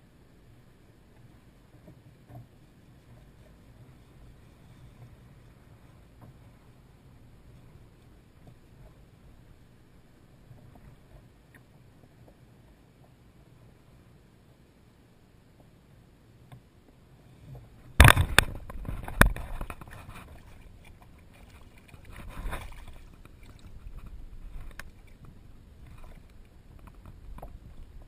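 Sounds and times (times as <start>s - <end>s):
sharp knocks beside a kayak: 18.0s - 20.0s
water splashing: 18.0s - 28.0s.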